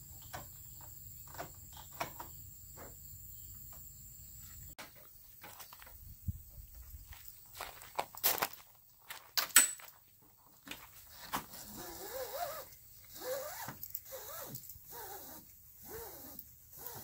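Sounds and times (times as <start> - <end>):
short squeaks: 11.1 - 17.0
vinyl track zipper-like rasp: 11.1 - 17.0.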